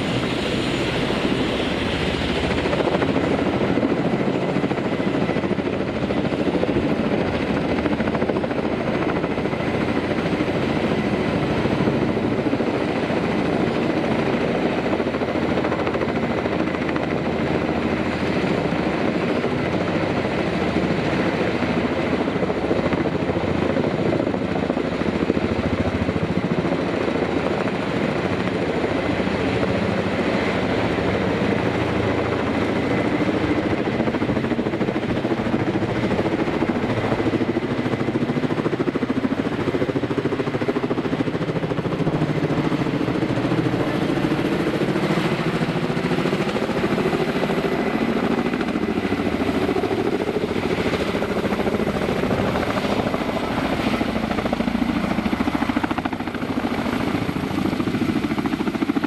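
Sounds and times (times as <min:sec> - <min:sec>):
helicopter rotor thrum: 0:00.0 - 0:59.0.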